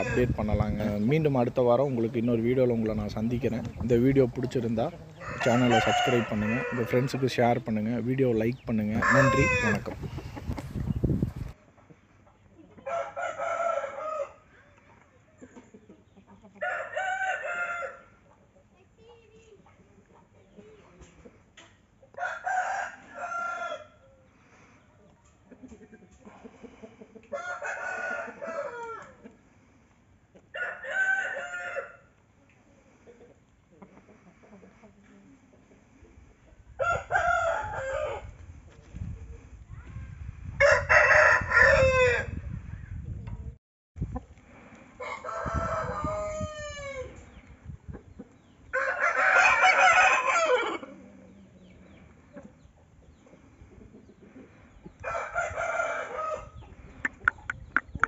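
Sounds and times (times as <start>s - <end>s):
rooster crowing: 0.0s - 0.4s, 5.1s - 7.5s, 8.9s - 9.9s, 12.8s - 14.4s, 16.6s - 18.1s, 22.2s - 24.0s, 27.3s - 29.2s, 30.5s - 32.1s, 36.8s - 38.3s, 40.6s - 42.4s, 45.0s - 47.2s, 48.7s - 51.0s, 55.0s - 56.6s
soft clucking: 0.0s - 12.0s, 56.8s - 58.0s.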